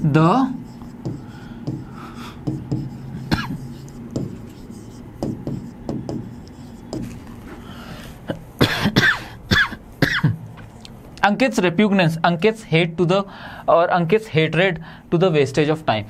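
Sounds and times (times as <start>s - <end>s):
low steady hum: 0.0s - 16.0s
scattered taps: 0.8s - 4.6s, 5.2s - 7.2s
person coughing: 3.2s - 3.7s, 8.2s - 10.4s.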